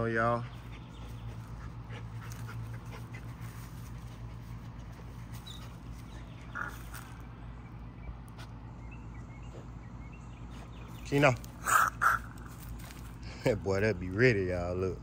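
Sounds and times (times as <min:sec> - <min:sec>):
steady low hum: 0:00.0 - 0:15.0
dog sniffing through grass: 0:00.4 - 0:07.2.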